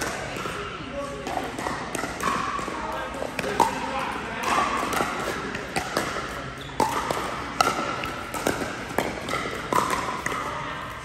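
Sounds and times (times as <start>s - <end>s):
ball bouncing on court: 0.0s - 11.0s
paddles striking plastic ball: 4.4s - 10.5s.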